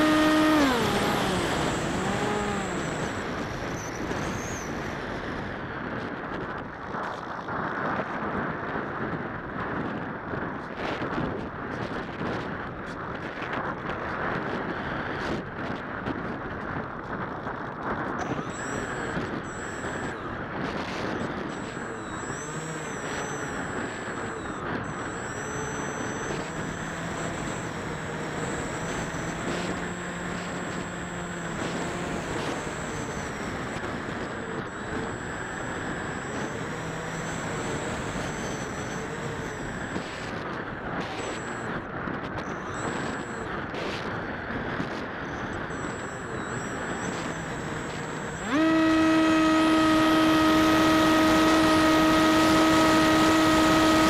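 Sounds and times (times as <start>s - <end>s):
thin high whine: 0.0s - 4.8s, 18.2s - 41.8s, 42.4s - 44.0s, 45.3s - 54.0s
electric motor and propeller whine: 0.0s - 54.0s.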